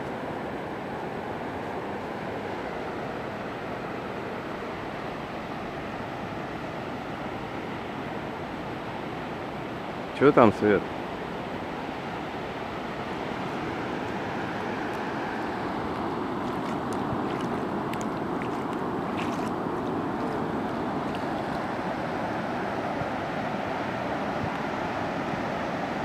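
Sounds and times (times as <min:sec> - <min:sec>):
sea surf breaking on beach: 0:00.0 - 0:26.0
splashes from wading: 0:14.7 - 0:22.1.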